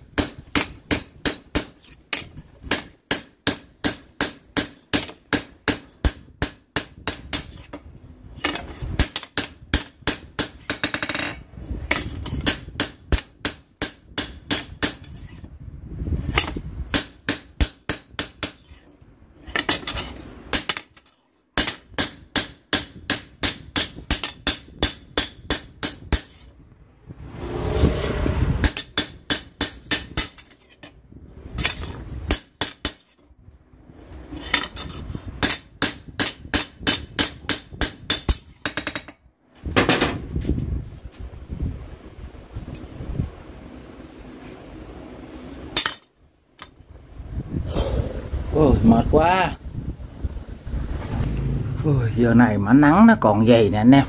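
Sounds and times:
hammer striking metal on anvil: 21.6 - 26.4
rushing noise: 47.0 - 52.7.

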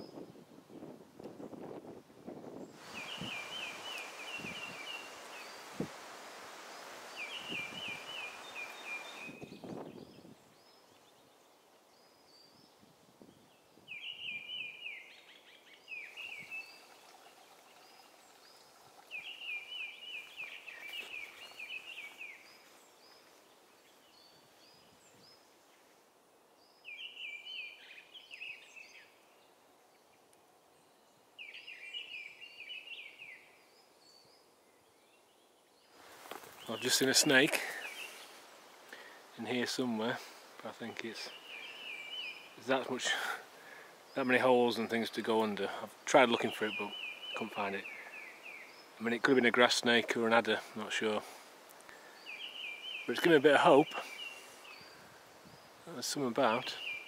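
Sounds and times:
rustling vegetation: 0.0 - 57.0
songbird trilling: 2.7 - 5.8, 7.1 - 11.1, 13.9 - 23.2, 40.8 - 43.0, 46.2 - 50.4
footsteps through vegetation: 20.1 - 24.8, 36.0 - 38.8.

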